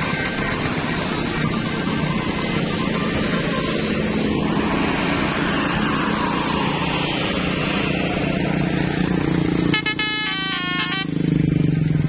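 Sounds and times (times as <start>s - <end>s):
bus diesel engine rumbling: 0.0s - 12.0s
multi-tone horn melody: 9.6s - 11.2s.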